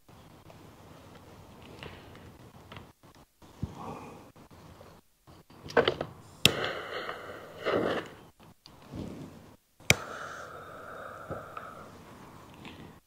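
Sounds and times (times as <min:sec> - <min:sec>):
charcoal hissing: 0:06.2 - 0:13.0
lighter clicks: 0:09.9 - 0:10.2.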